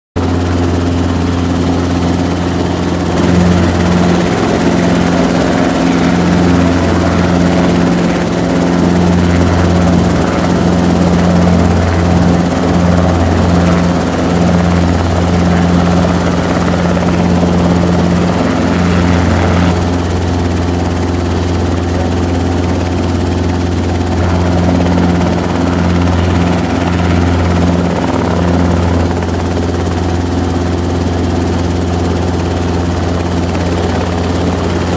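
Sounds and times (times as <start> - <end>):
helicopter engine and rotors droning: 0.2 - 34.9.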